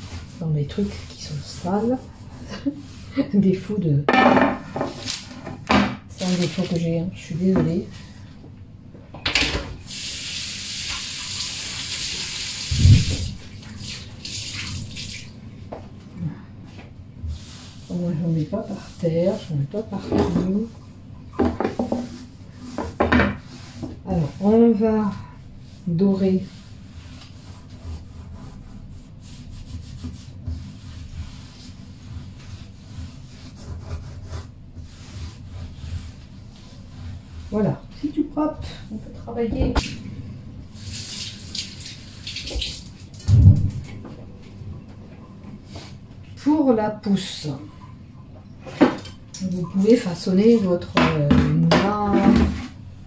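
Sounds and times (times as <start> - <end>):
cloth wiping tiled countertop: 0.0 - 3.7, 17.2 - 39.9, 49.8 - 51.0.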